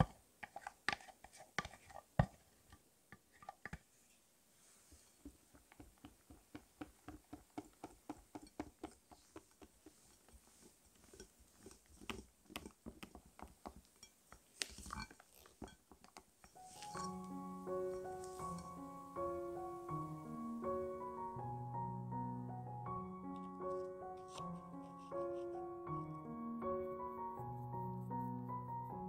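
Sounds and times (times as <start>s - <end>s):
utensil scraping glass bowl: 16.6s - 17.2s.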